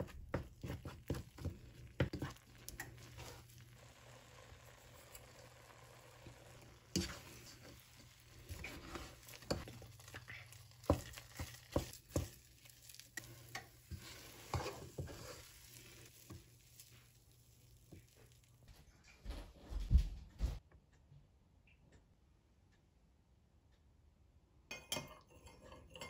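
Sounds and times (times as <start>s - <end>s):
wooden spatula mashing paste: 0.0s - 18.8s.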